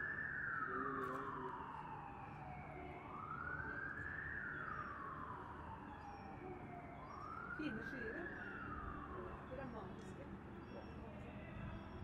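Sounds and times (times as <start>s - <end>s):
emergency siren wailing: 0.0s - 9.5s.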